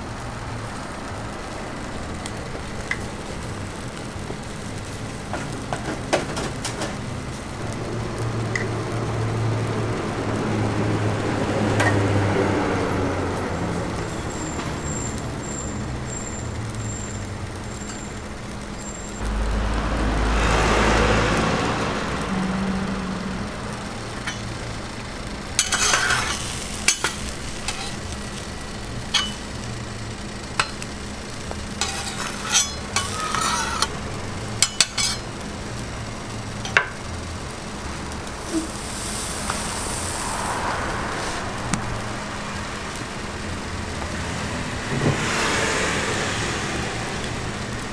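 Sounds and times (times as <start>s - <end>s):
egg sizzling on griddle: 0.0s - 47.9s
rush of noise: 19.2s - 24.8s, 37.8s - 47.6s
metal spatula clinking and scraping: 25.6s - 28.0s, 29.1s - 29.4s, 31.8s - 34.0s, 34.6s - 35.2s.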